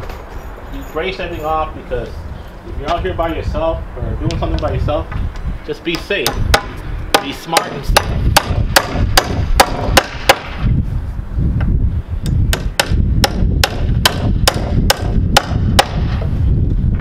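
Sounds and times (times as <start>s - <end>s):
hammer striking nail: 5.9s - 10.6s, 12.5s - 16.2s.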